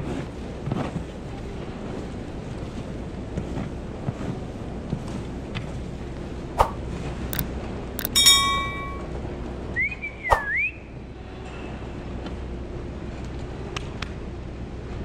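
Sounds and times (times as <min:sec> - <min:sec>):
sharp clicks: 0:08.0 - 0:09.0
bell-like chime: 0:08.0 - 0:09.1.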